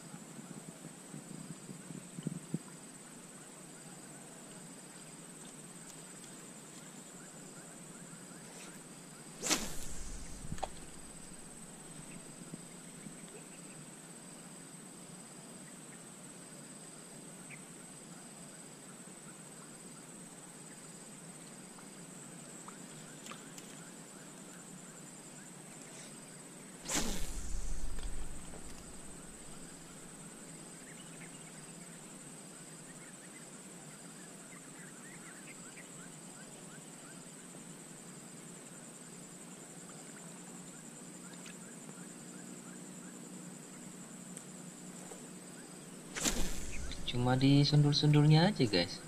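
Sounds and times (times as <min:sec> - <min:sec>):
high insect drone: 0:00.0 - 0:49.0
faint pulsing chirp: 0:06.8 - 0:13.9, 0:22.6 - 0:37.4, 0:44.8 - 0:49.0
fishing rod cast whoosh: 0:09.4 - 0:12.3, 0:26.8 - 0:30.1, 0:46.1 - 0:47.4.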